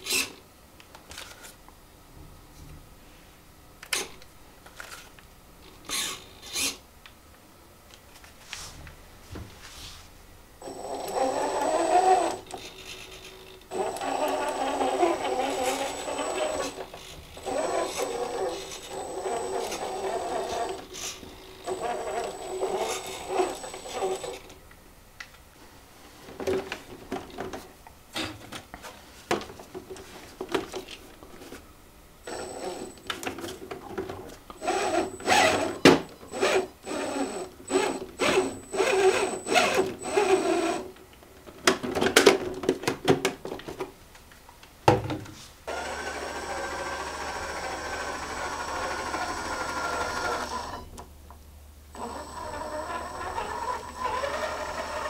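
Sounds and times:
electric motor whirring: 10.6 - 24.5, 32.3 - 33.1, 34.6 - 40.8, 45.7 - 50.8, 51.9 - 55.0
high motor whine: 13.7 - 24.5, 32.3 - 33.1, 34.6 - 40.6, 51.9 - 55.0.

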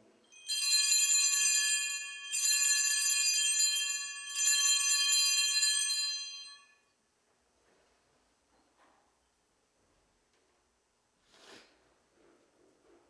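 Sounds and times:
altar bells jingling: 0.3 - 6.8.

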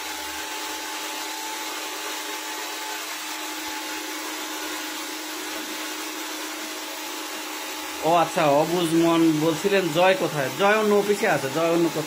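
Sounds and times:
hair dryer running: 0.0 - 12.0.

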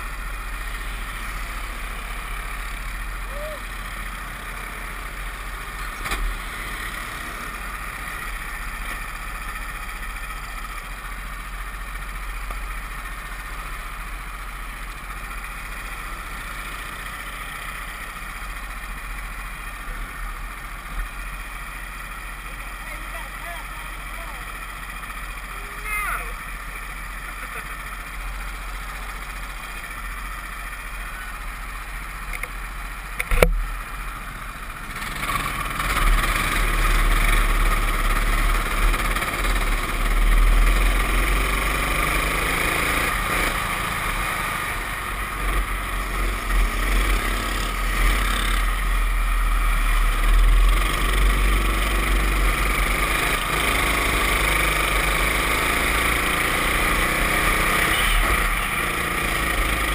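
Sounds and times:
kart engine revving: 0.0 - 10.7, 34.2 - 59.9.

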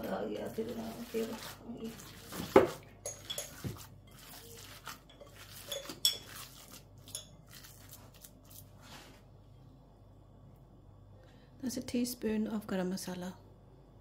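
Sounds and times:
hands squelching minced meat: 0.5 - 9.2.

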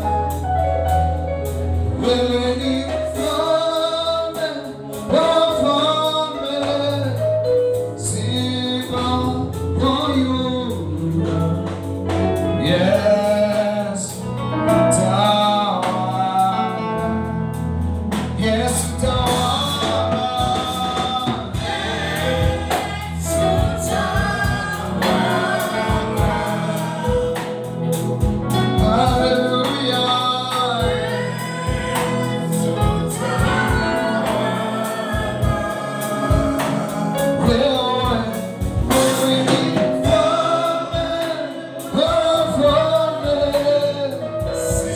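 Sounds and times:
drum kit: 0.0 - 44.9
electric keyboard: 0.0 - 44.9
men and women singing: 18.4 - 28.0, 28.8 - 44.9.

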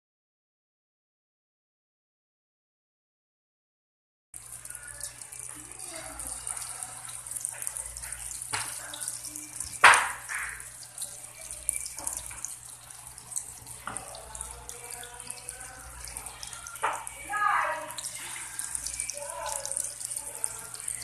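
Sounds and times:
batter sizzling in oil: 4.4 - 21.0.

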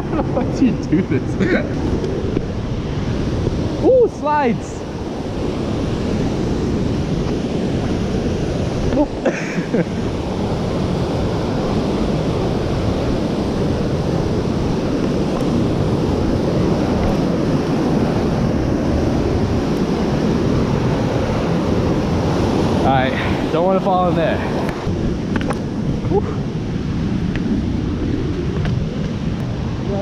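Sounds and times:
wind buffeting microphone: 0.0 - 30.0
whitewater rapids rushing: 3.8 - 4.9.

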